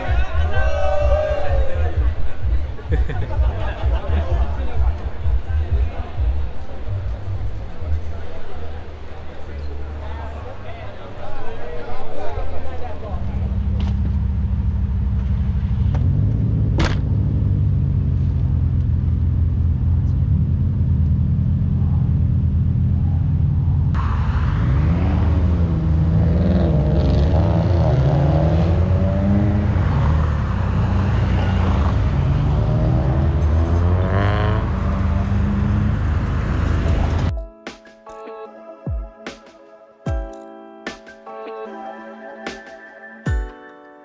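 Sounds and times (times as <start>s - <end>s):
indistinct voices: 0.0s - 13.8s
car engine rumbling: 0.0s - 37.3s.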